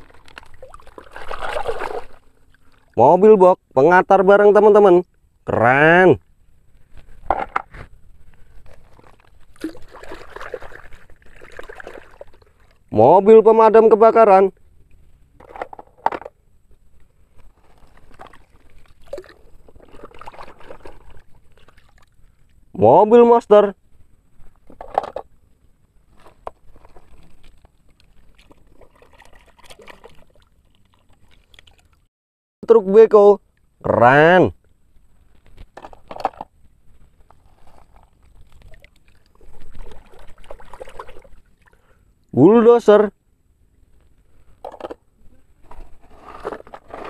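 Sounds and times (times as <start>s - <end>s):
toys scraping in sand: 45.6s - 47.0s.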